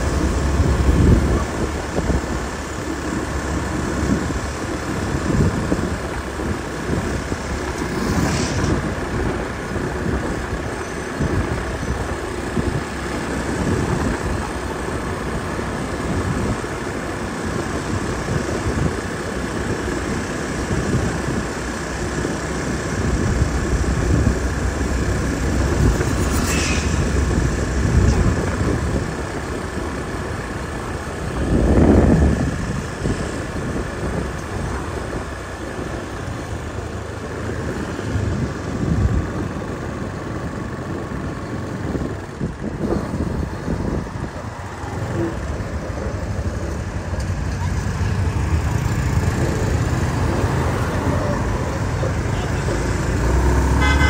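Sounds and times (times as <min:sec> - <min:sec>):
traffic rumble: 0:00.0 - 0:54.0.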